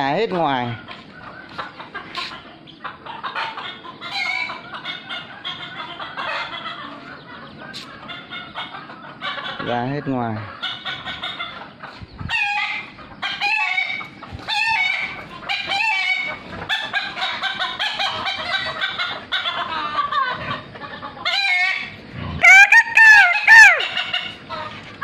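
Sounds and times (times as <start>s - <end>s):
chickens clucking: 0.0s - 25.0s
rooster crowing loudly: 21.5s - 24.0s.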